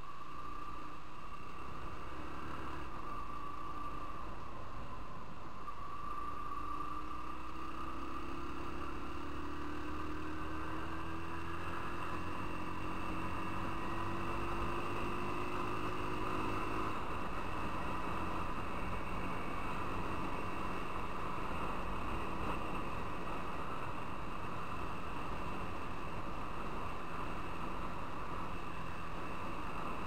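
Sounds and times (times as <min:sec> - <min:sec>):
faint motorcycle engine: 0:00.0 - 0:30.0
wind and road rush: 0:00.0 - 0:30.0.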